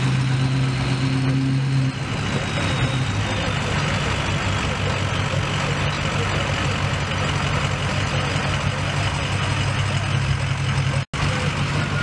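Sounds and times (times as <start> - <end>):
diesel engine idling: 0.0 - 12.0.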